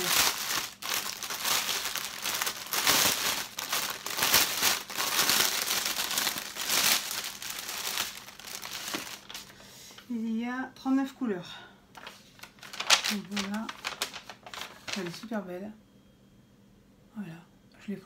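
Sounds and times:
plastic packaging crinkling: 0:00.0 - 0:09.6, 0:12.0 - 0:15.4.

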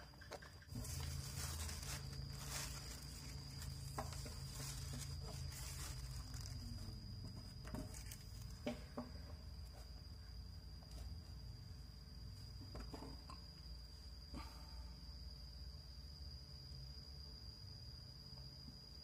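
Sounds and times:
plastic sheet rustling: 0:00.7 - 0:06.9.

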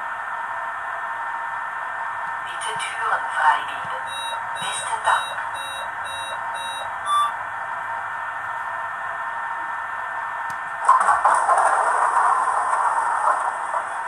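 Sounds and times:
warning beeps from small loudspeaker: 0:03.9 - 0:07.4.

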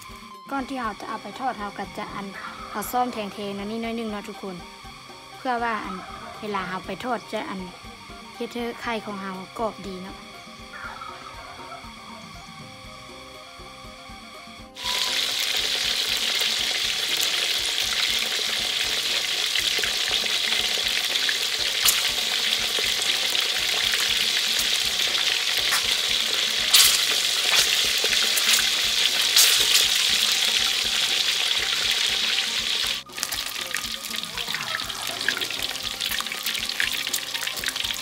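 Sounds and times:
eggs sizzling in hot oil: 0:00.0 - 0:38.0
oil popping and spitting: 0:14.8 - 0:38.0.

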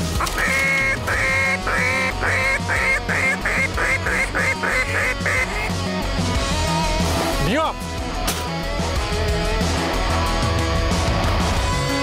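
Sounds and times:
background music: 0:00.0 - 0:12.0
duck call quacks: 0:00.2 - 0:05.8.

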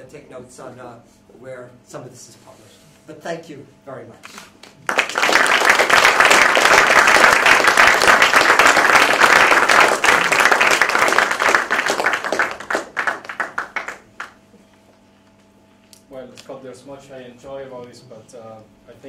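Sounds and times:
audience applauding: 0:04.8 - 0:14.4.

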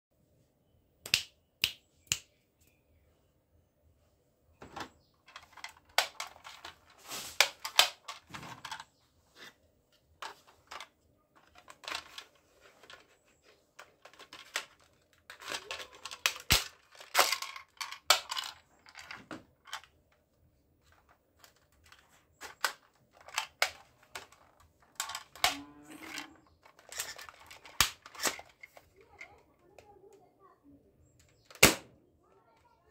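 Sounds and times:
plastic toy guns clicking and rattling: 0:05.2 - 0:08.9, 0:10.2 - 0:13.2, 0:13.8 - 0:19.9, 0:20.8 - 0:29.4, 0:31.3 - 0:31.8.

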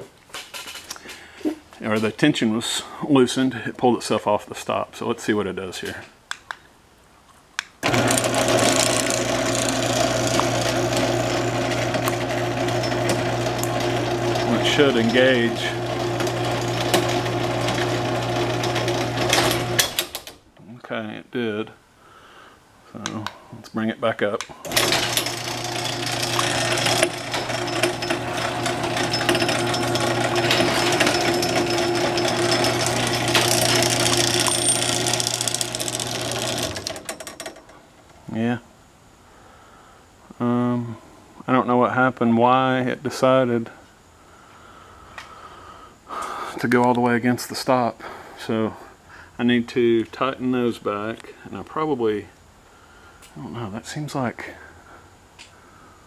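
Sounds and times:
garage door opener motor humming: 0:07.8 - 0:20.4, 0:24.6 - 0:38.0
drive chain clattering: 0:24.7 - 0:37.6.

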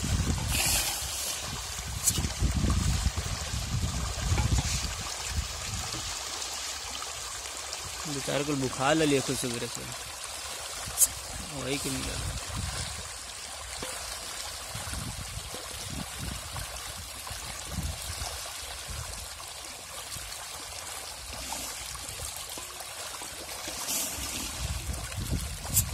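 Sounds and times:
fish splashing in water: 0:00.0 - 0:25.9.

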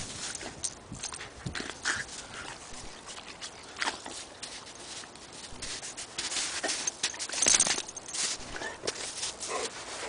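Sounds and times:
dog scrambling in crunchy snow: 0:04.0 - 0:10.0.

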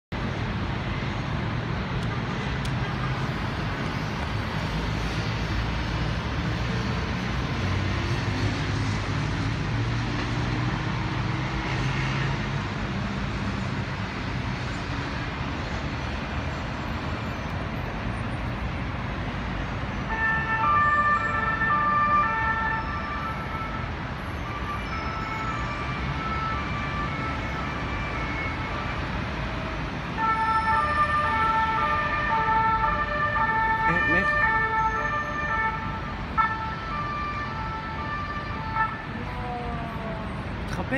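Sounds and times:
rumble of city traffic: 0:00.1 - 0:40.9
police two-tone siren: 0:20.1 - 0:40.4.

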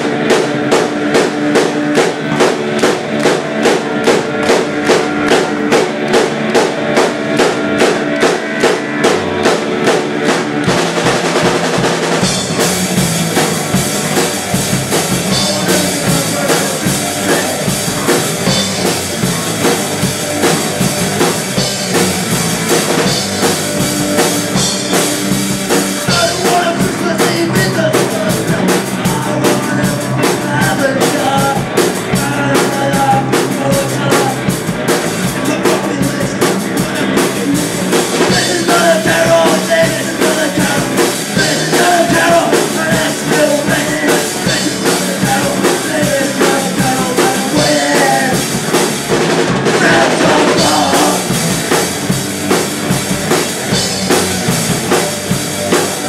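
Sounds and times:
punk rock band playing: 0:00.0 - 0:56.0
person singing: 0:14.9 - 0:18.3, 0:26.0 - 0:34.6, 0:35.2 - 0:48.9, 0:49.6 - 0:51.6.

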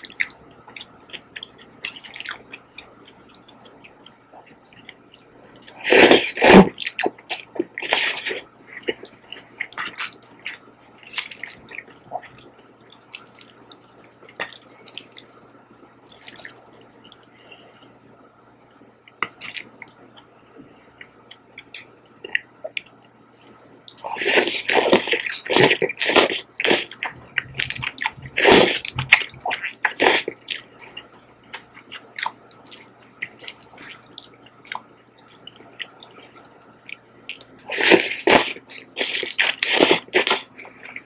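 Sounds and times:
chewing: 0:00.0 - 0:18.2, 0:19.0 - 0:41.0
wet noodle slurping: 0:05.8 - 0:06.8, 0:24.1 - 0:30.4, 0:37.7 - 0:40.5.

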